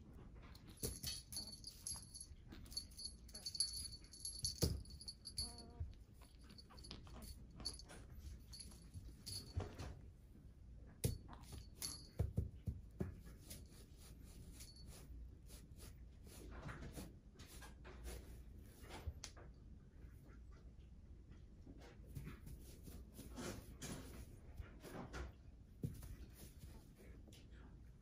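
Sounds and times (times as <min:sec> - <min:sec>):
small jingle bell tinkling: 0:00.5 - 0:10.0, 0:11.1 - 0:12.4.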